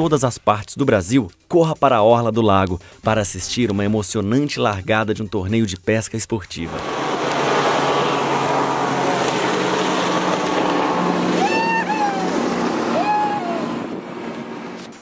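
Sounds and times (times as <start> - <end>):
boat outboard motors racing past: 6.7 - 15.0
rushing spray and wakes: 6.7 - 15.0
short high whoops: 11.3 - 13.9.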